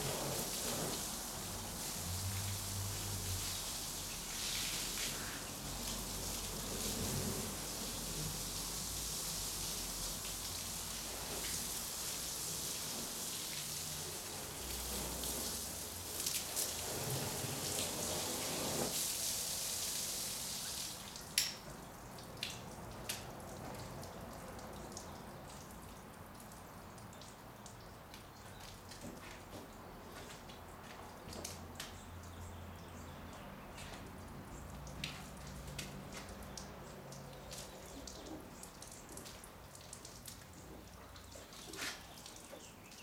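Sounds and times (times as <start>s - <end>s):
water hissing and splashing: 0.0s - 26.4s
sharp clicks or drips: 21.2s - 29.1s, 31.2s - 32.4s.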